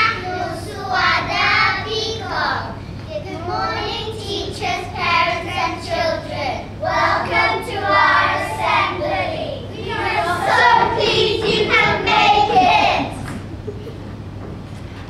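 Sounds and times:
children singing in unison: 3.6 - 13.2.

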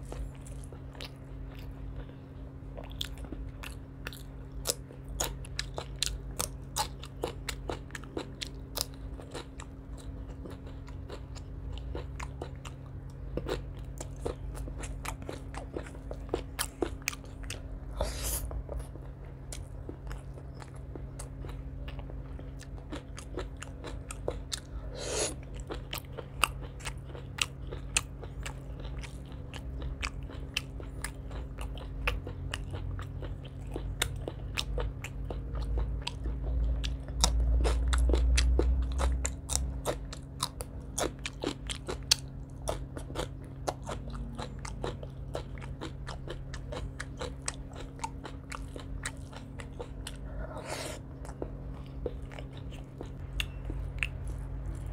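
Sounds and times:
man crunching and chewing food: 0.0 - 54.9
steady low hum: 0.0 - 54.9.

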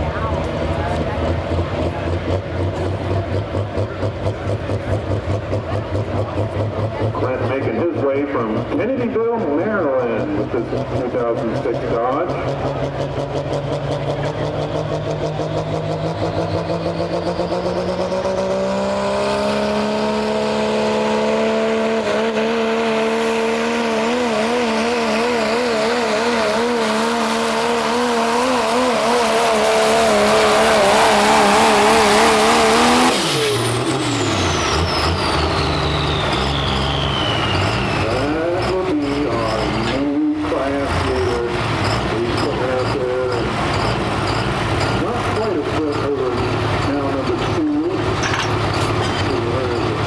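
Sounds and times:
diesel pickup engine at full throttle: 0.0 - 50.0
turbo whine spooling down: 30.3 - 42.4.

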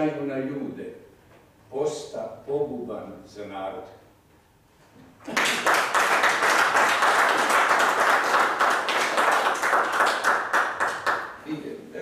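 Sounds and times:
audience applauding: 5.3 - 11.4.

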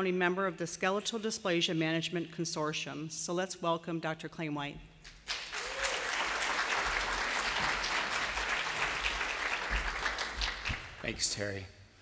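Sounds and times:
audience applauding: 5.2 - 11.2.

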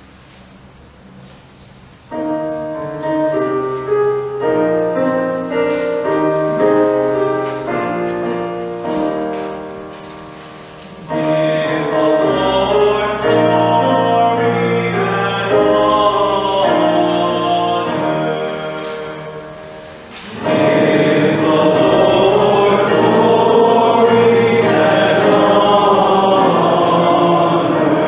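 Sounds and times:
keyboard sustained chords: 2.0 - 28.0
person singing: 11.0 - 28.0.

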